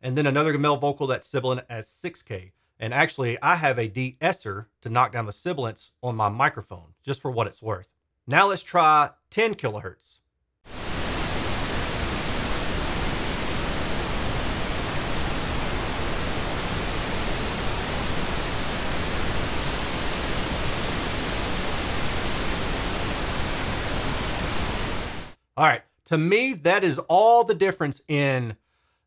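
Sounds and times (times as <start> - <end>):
pink noise test signal: 10.7 - 25.4.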